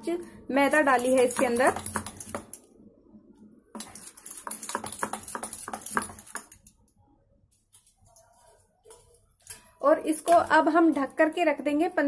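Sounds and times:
metal spoon beating batter in bowl: 0:00.6 - 0:02.6, 0:03.7 - 0:06.9.

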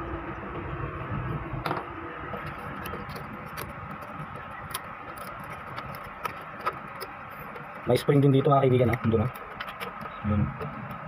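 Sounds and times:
plastic clicks and scratches: 0:02.3 - 0:11.0.

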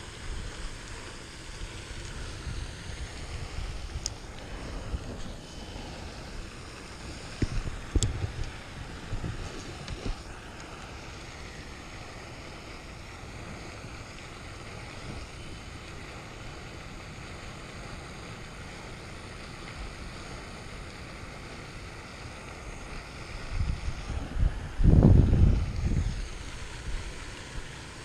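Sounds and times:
wind buffeting microphone: 0:01.5 - 0:12.4, 0:22.8 - 0:28.0.

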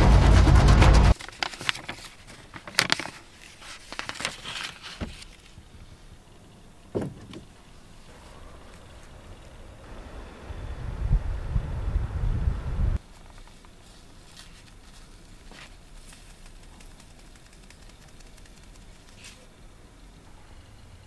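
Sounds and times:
clicks and rustles of handling: 0:01.2 - 0:05.6, 0:13.0 - 0:19.6.

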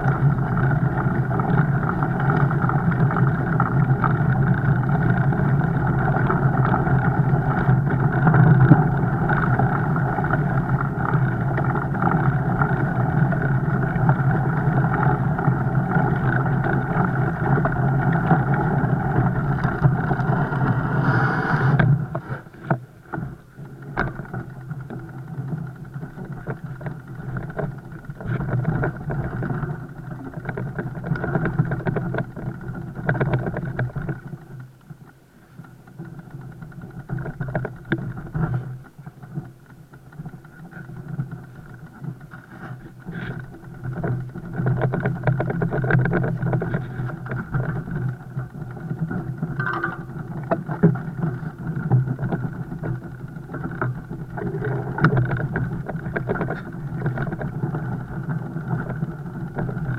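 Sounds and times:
bike tyres rumbling drone: 0:00.0 - 0:59.9
bike rattles and knocks: 0:21.8 - 0:34.4, 0:35.9 - 0:59.9.

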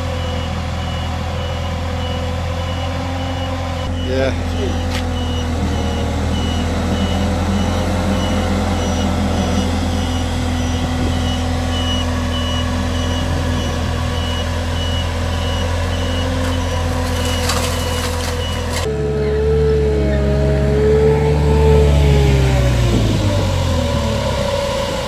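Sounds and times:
street sweeper running: 0:00.0 - 0:25.0
high-pitched warning beeper: 0:00.3 - 0:18.8.

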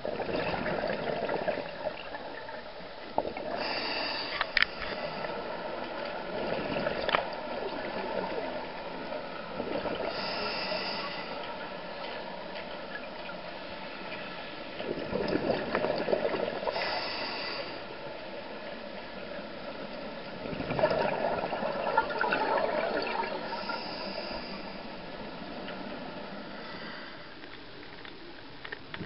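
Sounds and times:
diver exhaling bubbles underwater: 0:00.0 - 0:02.1, 0:14.8 - 0:17.0, 0:20.4 - 0:24.7
regulator inhalation hiss: 0:03.6 - 0:05.3, 0:10.1 - 0:11.4, 0:16.7 - 0:17.9, 0:23.5 - 0:24.9.

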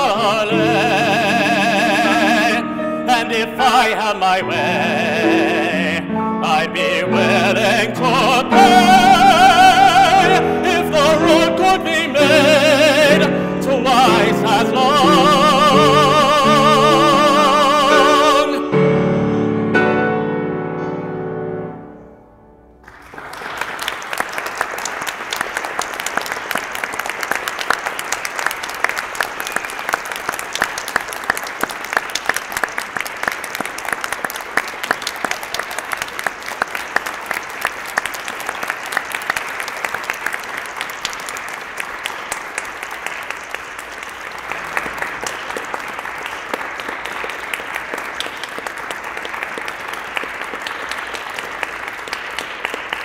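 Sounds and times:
audience applause: 0:00.0 - 0:18.5, 0:22.8 - 0:53.0
piano-accompanied song: 0:00.0 - 0:23.3.

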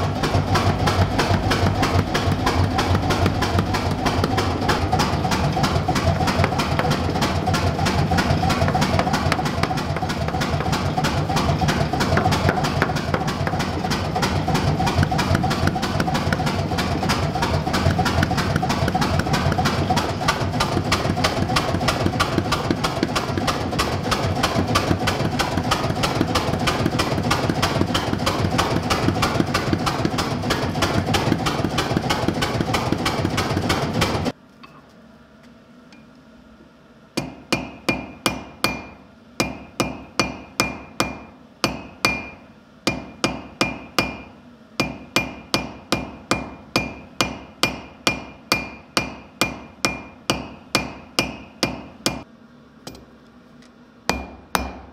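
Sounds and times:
power hammer pounding steel: 0:00.0 - 0:34.3, 0:37.2 - 0:52.3, 0:54.1 - 0:54.9
hand hammer striking anvil: 0:08.4 - 0:14.1, 0:37.2 - 0:52.2, 0:54.1 - 0:54.9
anvil ringing: 0:37.2 - 0:52.2.

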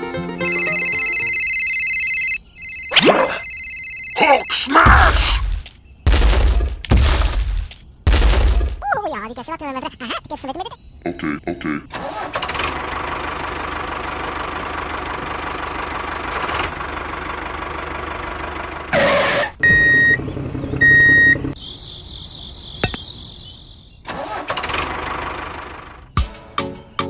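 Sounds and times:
tractor engine running: 0:00.0 - 0:04.2, 0:12.0 - 0:21.6, 0:24.1 - 0:26.2
short beeps: 0:00.4 - 0:04.8, 0:19.6 - 0:20.2.

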